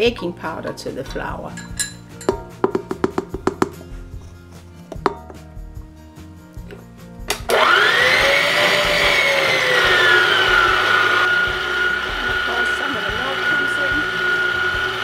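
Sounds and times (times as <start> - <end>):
electric mixer motor whining: 7.4 - 15.0.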